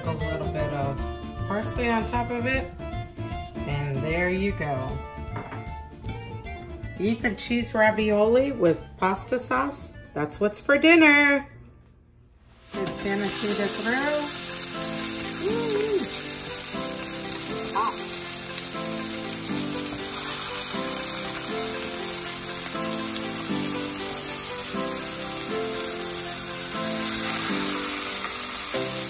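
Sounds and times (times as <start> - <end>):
light background music: 0.0 - 29.0
patties sizzling in hot oil: 12.6 - 29.0.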